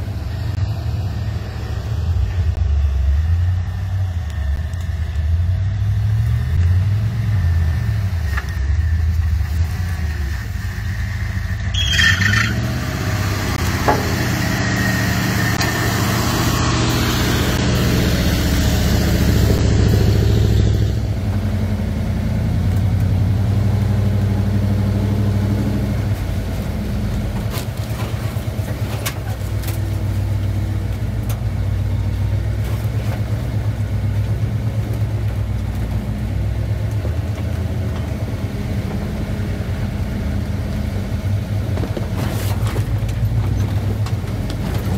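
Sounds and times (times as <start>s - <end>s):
car engine running: 0.0s - 44.9s
loud rushing noise: 12.6s - 21.2s.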